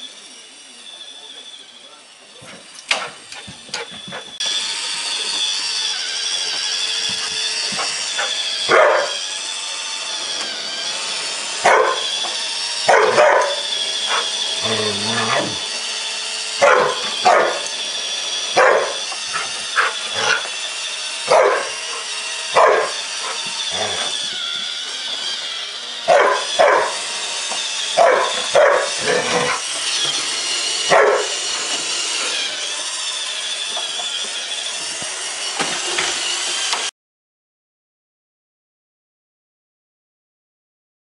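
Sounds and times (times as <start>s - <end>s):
robot vacuum whining: 0.0s - 36.9s
dog barking: 7.8s - 9.2s, 11.6s - 12.1s, 12.9s - 14.3s, 16.6s - 17.7s, 18.6s - 20.5s, 21.3s - 24.1s, 26.1s - 27.0s, 28.0s - 29.6s, 30.9s - 31.4s.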